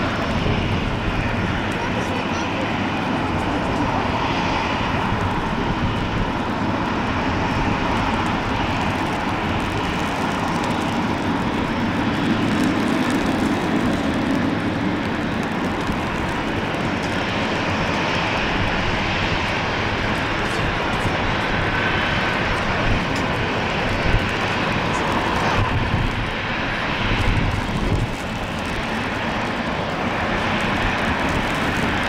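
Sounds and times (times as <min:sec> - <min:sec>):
jet engines running at taxi power: 0:00.0 - 0:32.0.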